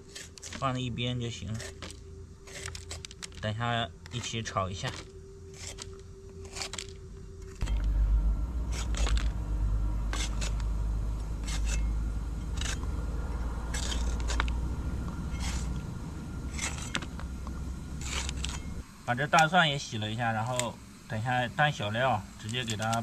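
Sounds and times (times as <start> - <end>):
steady low rumble: 0.6 - 22.7.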